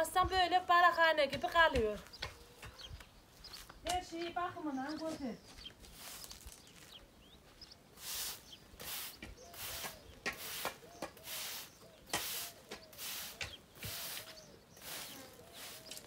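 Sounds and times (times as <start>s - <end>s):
broom sweeping dirt and gravel: 5.0s - 16.0s.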